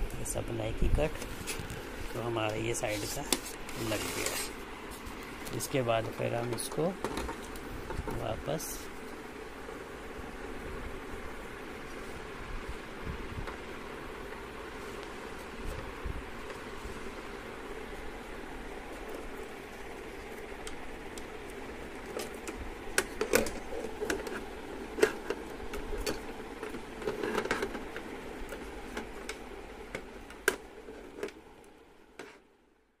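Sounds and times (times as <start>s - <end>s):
steady background noise: 0.0s - 33.0s.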